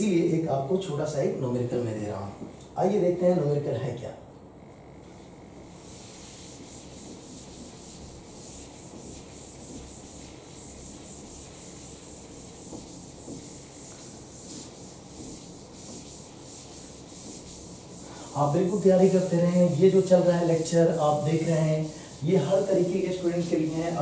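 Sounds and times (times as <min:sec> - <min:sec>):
duster wiping blackboard: 0:05.0 - 0:24.0.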